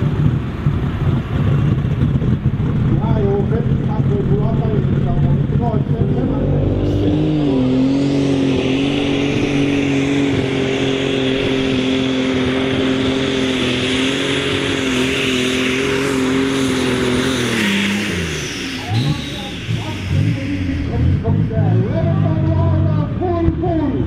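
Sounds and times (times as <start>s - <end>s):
tractor engine at full throttle: 0.0s - 24.0s.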